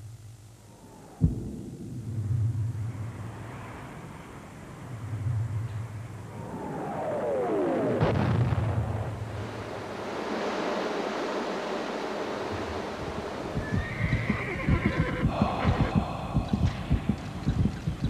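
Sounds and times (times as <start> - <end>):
steady rushing noise: 0.0 - 18.0
horse whinnying: 13.6 - 15.9.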